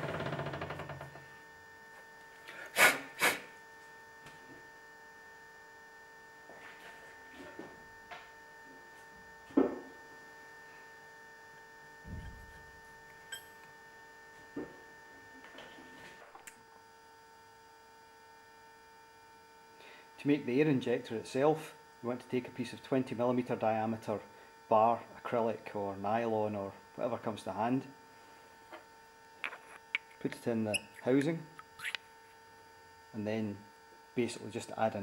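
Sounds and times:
steady low hum: 11.8 - 17.0
low thud: 12.0 - 12.7.

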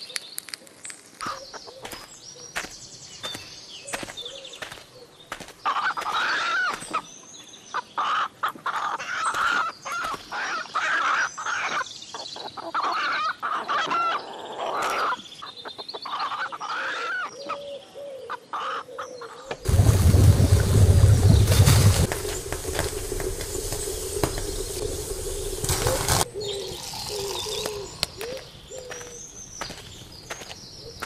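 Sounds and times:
loud low rumble: 19.7 - 26.3.

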